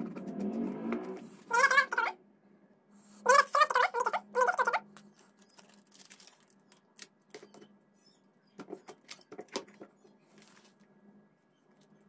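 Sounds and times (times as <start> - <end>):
foil tape crinkling: 5.0 - 7.4.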